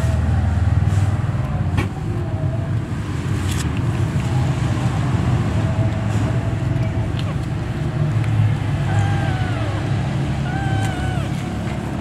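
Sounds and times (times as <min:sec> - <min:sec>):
engine rumbling: 0:00.0 - 0:12.0.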